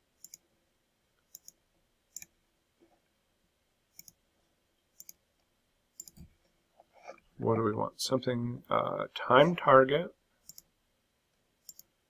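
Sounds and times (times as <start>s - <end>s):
computer mouse clicks: 0.2s - 0.4s, 1.3s - 2.4s, 3.9s - 4.2s, 5.0s - 5.2s, 6.0s - 6.3s, 10.4s - 10.7s, 11.6s - 11.9s.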